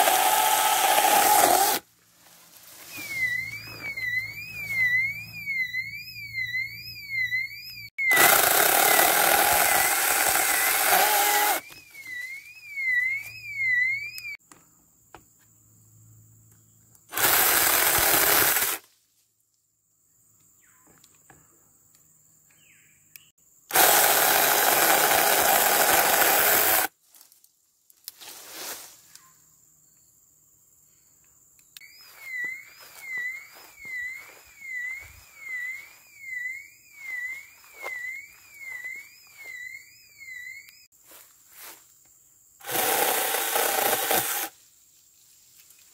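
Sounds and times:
mini chainsaw cutting branches: 0:00.0 - 0:01.8, 0:08.0 - 0:11.8, 0:17.1 - 0:18.9, 0:23.7 - 0:26.9, 0:42.6 - 0:44.6.

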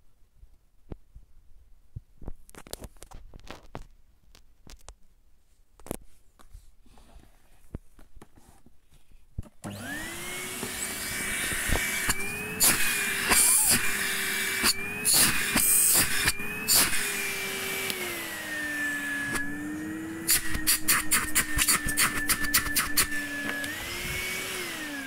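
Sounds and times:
vacuum cleaner motor whining: 0:09.6 - 0:25.0
rushing air at hose: 0:20.2 - 0:23.2.

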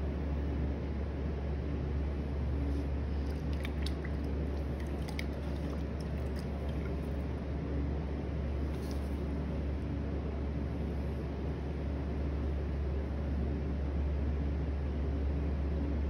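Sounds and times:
potter's wheel humming: 0:00.0 - 0:15.4
wet clay squelching: 0:02.7 - 0:07.4, 0:08.6 - 0:09.3
small wet clicks: 0:03.1 - 0:07.4.

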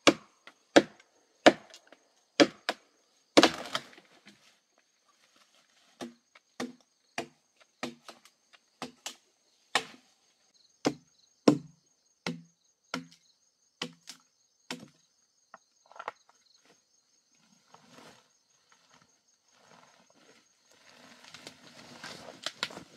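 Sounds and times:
blade chopping tree trunk: 0:00.0 - 0:01.8, 0:02.4 - 0:02.8, 0:03.4 - 0:04.0, 0:06.0 - 0:10.0, 0:10.8 - 0:13.2, 0:13.8 - 0:15.0
insects droning: 0:00.0 - 0:22.9.

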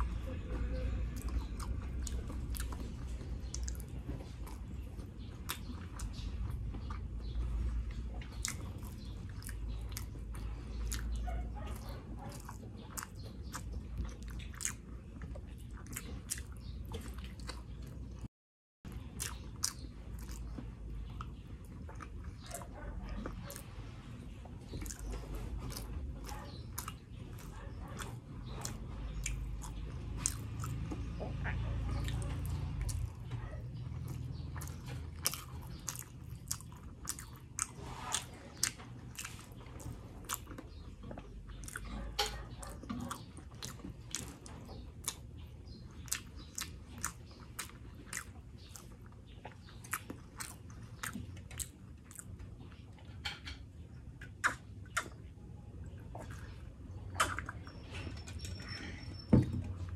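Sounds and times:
close chewing and biting: 0:00.0 - 0:18.3, 0:18.9 - 0:59.9
wet mouth clicks and smacks: 0:54.2 - 0:55.3.

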